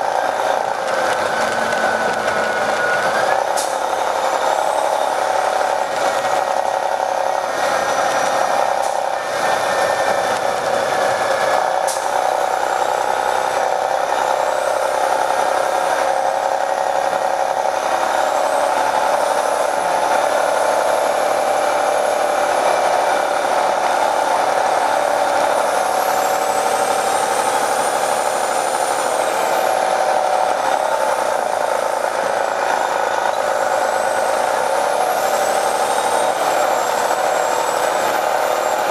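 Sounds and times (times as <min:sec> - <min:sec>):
bus engine droning: 0:00.0 - 0:38.9.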